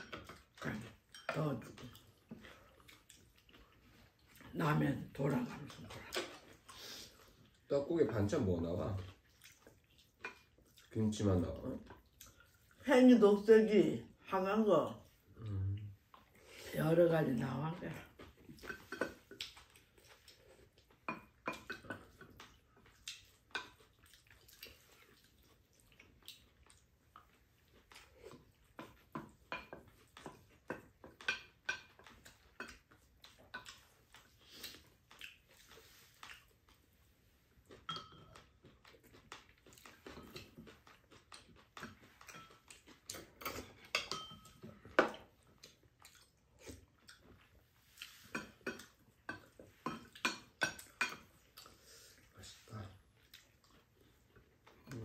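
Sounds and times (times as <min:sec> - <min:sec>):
utensils clinking on bowls: 0:37.8 - 0:38.5, 0:43.2 - 0:45.1.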